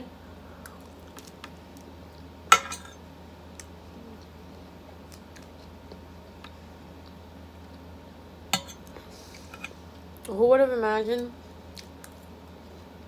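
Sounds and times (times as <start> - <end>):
fork clinking on plate: 8.6 - 8.8.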